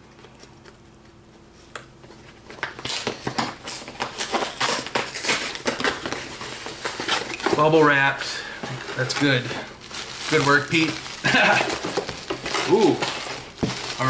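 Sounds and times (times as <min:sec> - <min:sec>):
cardboard and tape ripping: 0:02.6 - 0:08.0, 0:08.8 - 0:14.0.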